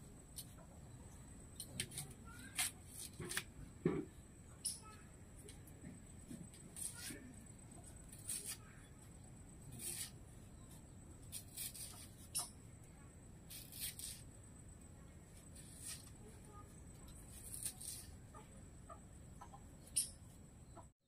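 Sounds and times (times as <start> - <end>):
knife scraping vegetables: 6.7 - 7.2, 8.1 - 8.7, 9.7 - 10.2, 11.2 - 12.5, 13.5 - 14.2, 15.5 - 16.2, 17.1 - 18.2.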